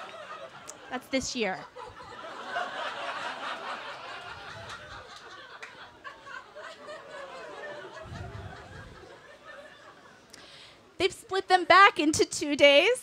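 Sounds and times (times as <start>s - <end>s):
audience laughing: 0.0s - 10.3s.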